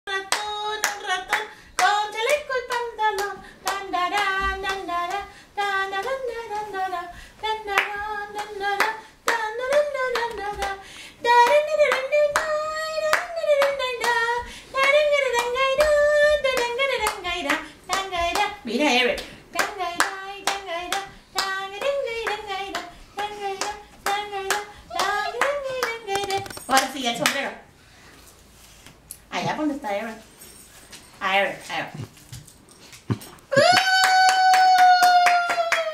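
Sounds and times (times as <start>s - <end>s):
hands clapping a beat: 0.3s - 5.3s, 19.2s - 27.4s.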